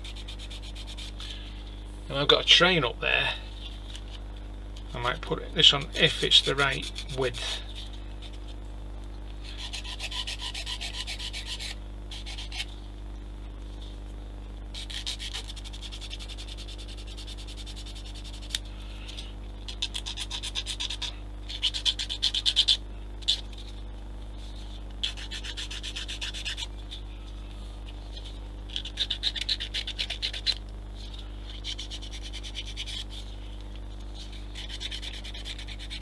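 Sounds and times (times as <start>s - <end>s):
sanding plastic by hand: 0.0s - 1.1s, 9.5s - 12.6s, 14.8s - 23.8s, 24.4s - 27.0s, 27.9s - 33.4s, 34.1s - 36.0s
steady low hum: 0.0s - 36.0s.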